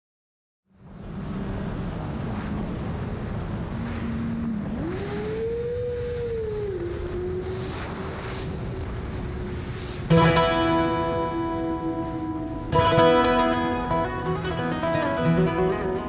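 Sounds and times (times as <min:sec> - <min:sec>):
wind and road rush: 0:00.7 - 0:10.1.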